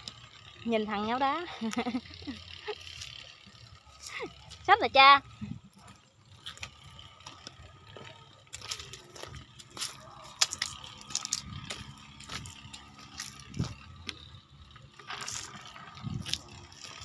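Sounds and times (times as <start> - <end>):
footsteps crunching dry leaves: 8.5 - 14.0, 14.8 - 17.0.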